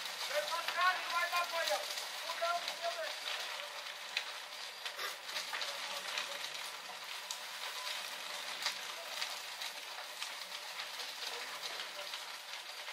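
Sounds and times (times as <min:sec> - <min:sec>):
large fire crackling: 0:00.0 - 0:12.9.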